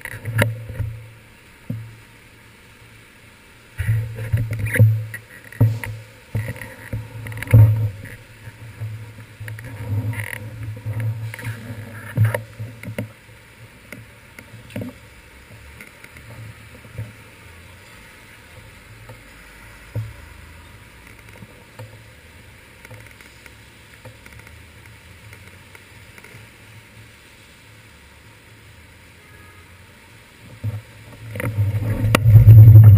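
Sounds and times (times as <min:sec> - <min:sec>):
muffled traffic rumble: 0:00.0 - 0:32.9.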